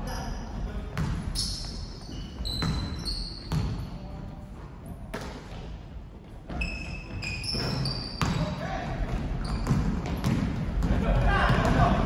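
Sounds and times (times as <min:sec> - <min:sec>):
sneakers squeaking: 0:00.0 - 0:12.0
basketball bouncing: 0:09.1 - 0:11.9.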